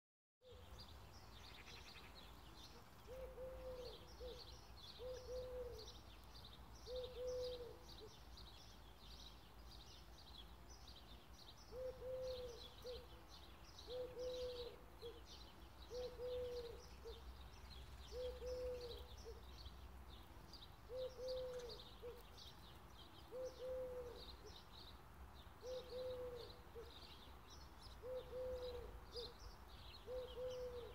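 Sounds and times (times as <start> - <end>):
small birds chirping: 0.4 - 30.9
dove cooing: 3.0 - 6.0, 6.9 - 8.1, 11.7 - 13.2, 13.8 - 15.3, 15.9 - 17.3, 18.1 - 19.4, 20.9 - 22.3, 23.2 - 24.6, 25.6 - 27.0, 28.0 - 29.4, 30.0 - 30.9.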